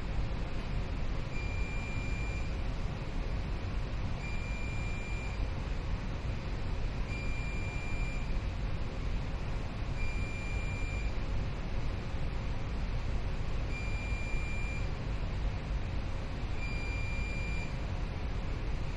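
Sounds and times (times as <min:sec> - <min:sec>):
low rumble of machinery: 0:00.0 - 0:18.9
alarm buzzer beeping: 0:16.6 - 0:17.7.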